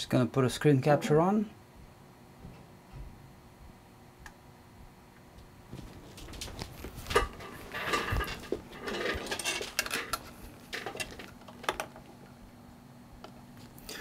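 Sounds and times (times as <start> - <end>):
small tools clicking and clattering: 6.2 - 12.1.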